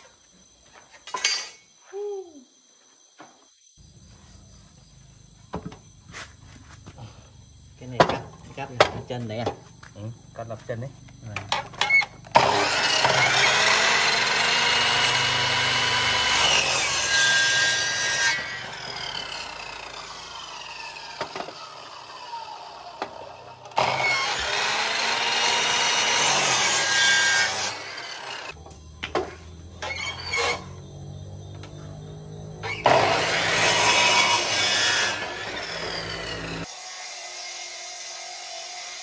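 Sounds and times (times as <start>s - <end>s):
miter saw cutting wood: 11.9s - 28.6s, 29.8s - 30.9s, 32.6s - 39.0s
saw motor winding down: 12.2s - 28.6s, 32.6s - 39.0s.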